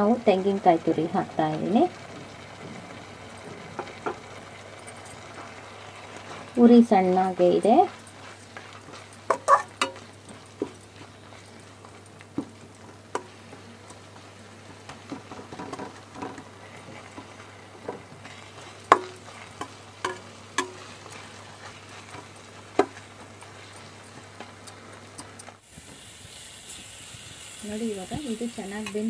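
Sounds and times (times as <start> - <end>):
faint sizzle: 0.0 - 29.0
spatula scraping a steel pan: 9.3 - 10.0.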